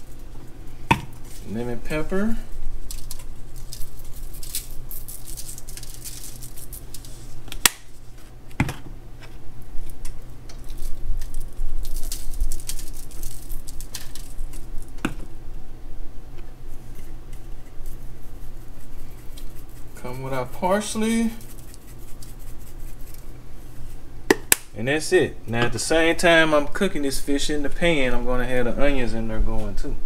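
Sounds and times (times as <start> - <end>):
low steady hum: 0.0 - 30.0
seasoning shaker rattling: 2.8 - 7.4, 10.6 - 15.0, 16.9 - 23.3.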